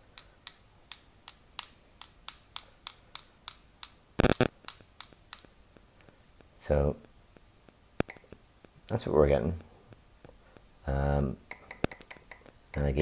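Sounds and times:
light metallic taps: 11.4s - 12.9s.

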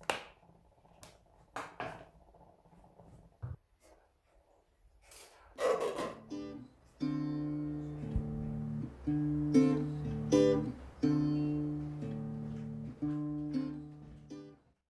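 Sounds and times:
acoustic guitar chords: 6.0s - 14.6s.

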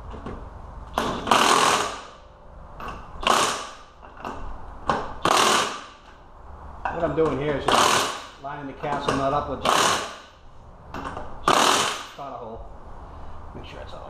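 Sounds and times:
impact wrench hammering: 0.1s - 2.2s, 2.8s - 6.1s, 6.8s - 12.2s.

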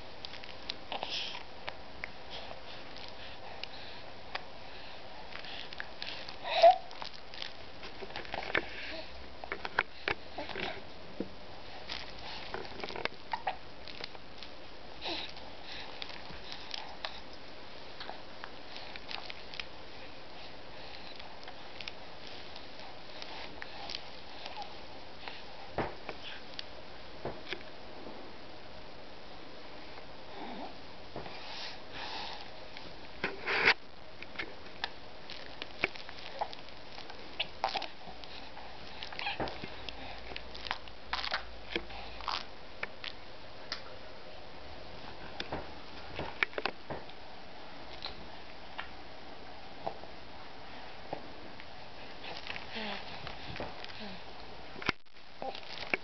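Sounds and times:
soft clicks and rustles: 5.2s - 28.3s, 31.1s - 44.0s, 45.0s - 47.2s, 50.9s - 56.0s.

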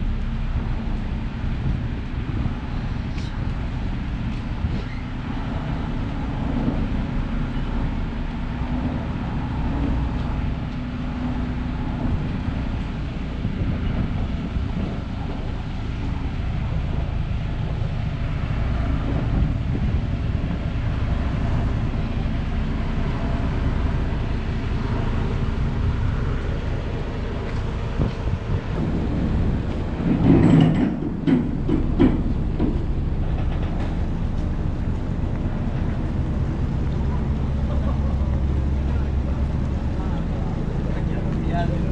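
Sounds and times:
low rumble of harbour ambience: 0.0s - 41.9s.

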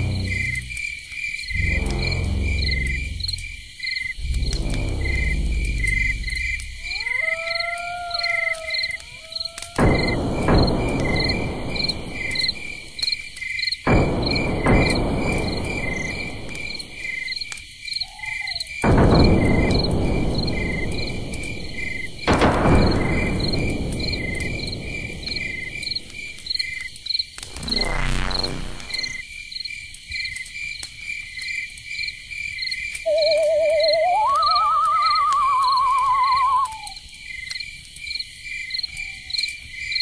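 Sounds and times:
loud rushes of low noise: 0.0s - 0.9s, 1.5s - 6.9s, 19.0s - 29.2s
cricket chirping: 0.0s - 40.0s.

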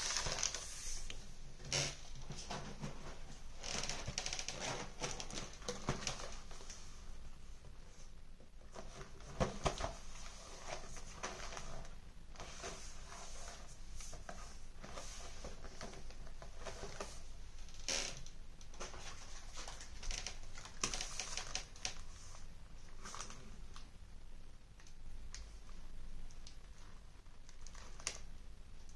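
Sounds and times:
plastic bread wrapper rustling: 0.0s - 1.1s, 3.6s - 6.6s, 27.4s - 28.3s.

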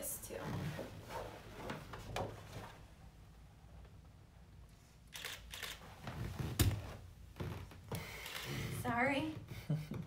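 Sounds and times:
camera shutter firing: 5.1s - 5.8s.

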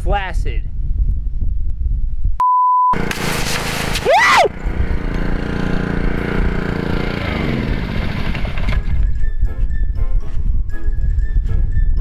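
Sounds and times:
loud hiss with swoop: 3.0s - 4.1s
pressure washer engine running: 3.0s - 8.7s.

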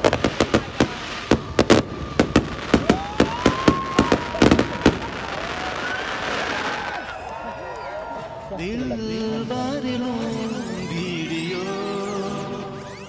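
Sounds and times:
fireworks banging and cracking: 0.0s - 7.4s, 8.0s - 13.0s.

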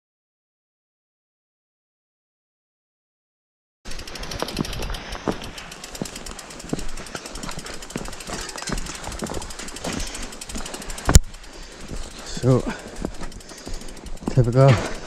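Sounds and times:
mountain bike rattling over dirt: 3.9s - 15.0s.

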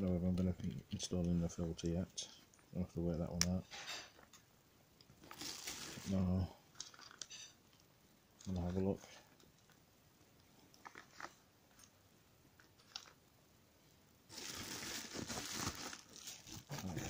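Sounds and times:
packaging crinkling: 5.2s - 7.4s, 14.3s - 17.0s.

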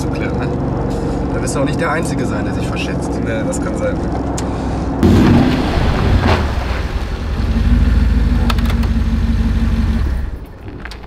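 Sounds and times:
car engine idling: 5.0s - 10.5s
car door clicks: 8.4s - 9.0s.

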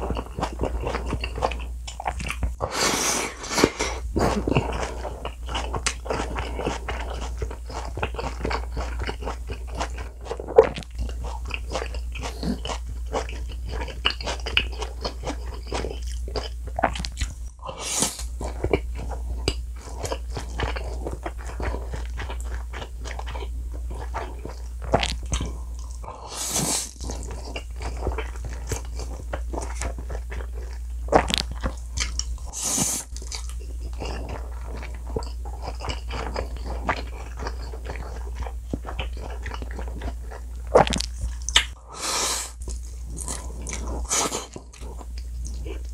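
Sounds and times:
wet chewing and smacking: 0.0s - 2.6s, 3.5s - 26.1s, 26.8s - 41.8s, 42.6s - 45.9s
slurping noodles: 2.6s - 9.3s, 17.6s - 18.3s, 26.1s - 28.1s, 32.5s - 33.4s, 41.9s - 44.7s.

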